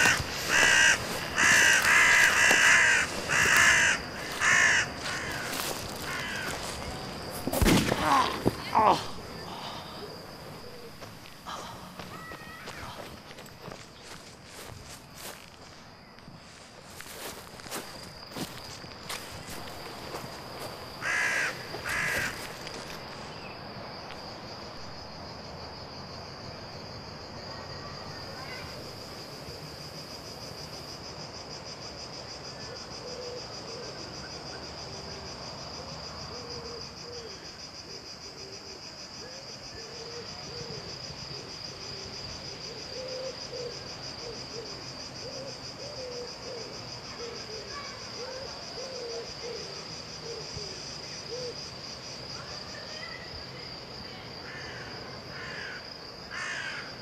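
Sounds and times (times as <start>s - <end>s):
rustles in grass: 0.0s - 8.6s, 12.1s - 21.0s
crickets chirring: 0.0s - 57.0s.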